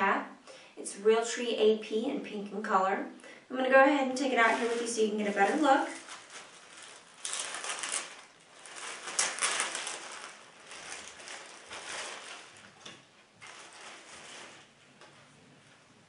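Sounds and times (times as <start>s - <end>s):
plastic bag crinkling: 4.1s - 15.7s.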